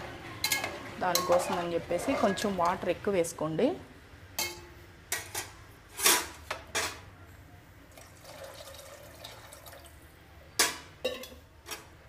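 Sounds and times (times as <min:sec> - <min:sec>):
metal kitchenware clinking on pot: 0:00.4 - 0:02.8, 0:04.4 - 0:07.0, 0:10.6 - 0:11.9
water pouring into pot: 0:07.9 - 0:10.0.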